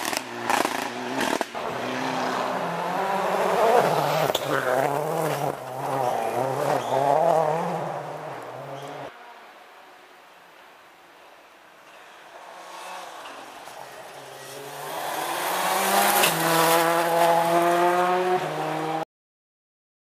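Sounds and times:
rally car engine revving: 0.0 - 9.1, 12.5 - 19.0.

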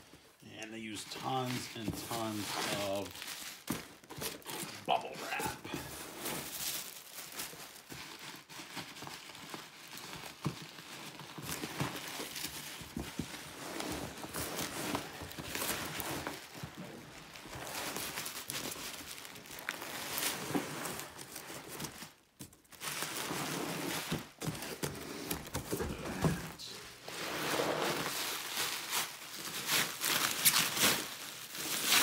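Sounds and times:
bubble wrap crinkling: 0.6 - 32.0
cardboard scraping: 1.1 - 6.8, 11.3 - 18.8, 19.4 - 22.0, 23.0 - 28.9.

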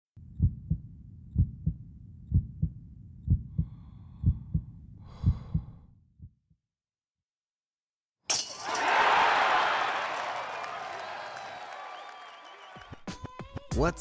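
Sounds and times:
heartbeat thumps: 0.2 - 6.6.

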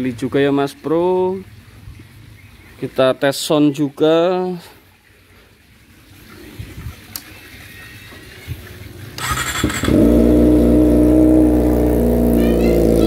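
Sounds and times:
motorcycle engine starting and idling: 9.0 - 13.0.

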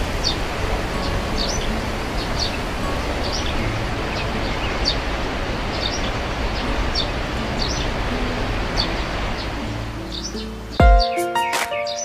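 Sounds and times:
birds chirping: 0.0 - 12.0
waterfall rushing: 0.0 - 12.0.

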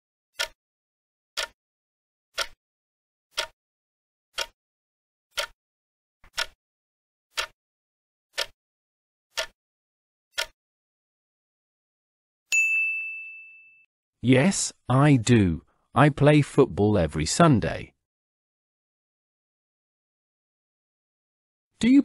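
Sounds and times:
clock ticks: 0.4 - 0.6, 1.4 - 1.6, 2.4 - 2.6, 3.3 - 3.6, 4.4 - 4.6, 5.3 - 5.6, 6.3 - 6.6, 7.3 - 7.6, 8.4 - 8.6, 9.3 - 9.6, 10.3 - 10.6.

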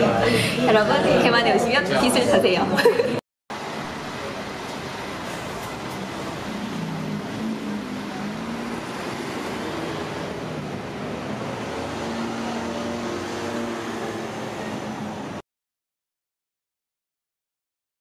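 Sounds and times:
low engine hums: 3.6 - 15.4
passing vehicles rushing: 3.6 - 15.4.

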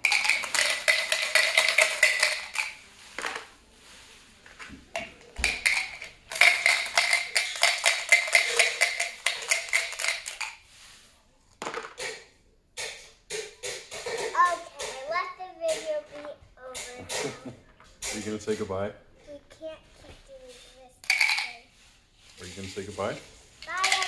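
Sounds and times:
dice rattling in plastic cup: 0.0 - 2.8, 5.4 - 10.6, 21.0 - 21.6, 23.6 - 24.0
dice clattering into cardboard box: 0.0 - 3.5, 5.0 - 10.6, 21.0 - 21.6, 23.6 - 24.0.

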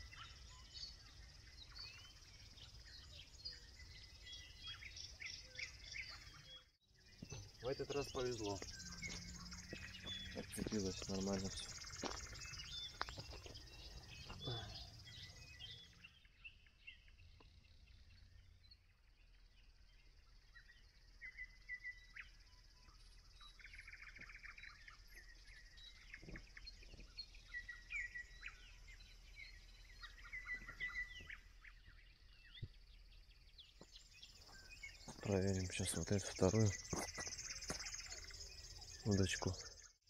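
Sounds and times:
small birds chirping: 0.0 - 40.0
high insect trill: 7.0 - 15.6, 33.8 - 39.9.

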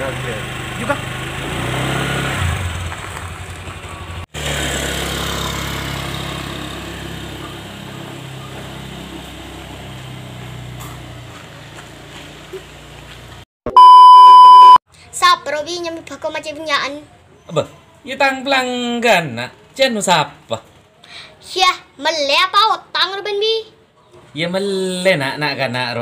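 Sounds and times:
small motorcycle engine pulling away: 0.0 - 13.4.

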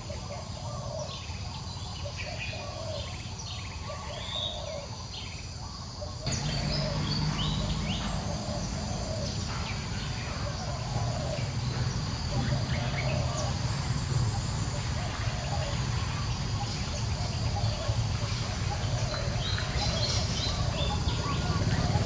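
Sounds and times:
insects and birds calling: 0.0 - 22.0
steady low hum: 5.6 - 22.0.

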